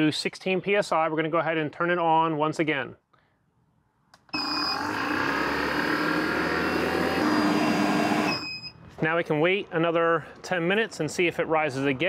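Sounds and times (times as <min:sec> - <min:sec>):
machine whirring and humming: 0:04.3 - 0:08.7
short high beep: 0:07.3 - 0:08.8.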